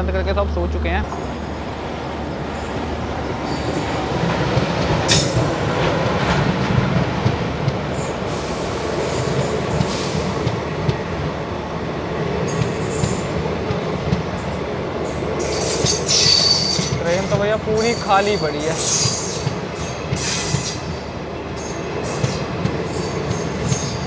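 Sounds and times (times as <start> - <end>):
train wheels rumbling on rails: 0.0 - 24.0
high wheel squeals: 15.4 - 20.9.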